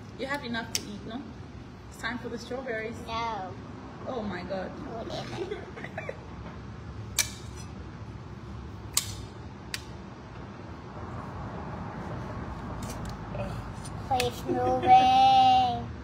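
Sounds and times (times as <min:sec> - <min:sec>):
low room hum: 0:00.0 - 0:16.0.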